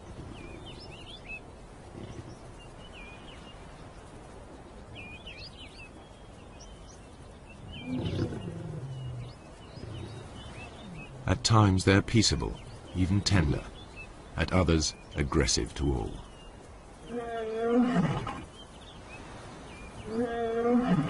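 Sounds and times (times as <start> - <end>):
small birds chirping: 0.0 - 21.0
lion growling: 7.7 - 11.3.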